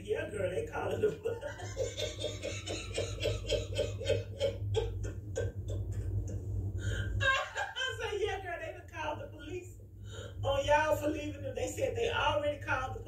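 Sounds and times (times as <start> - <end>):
woman laughing: 0.8 - 8.6.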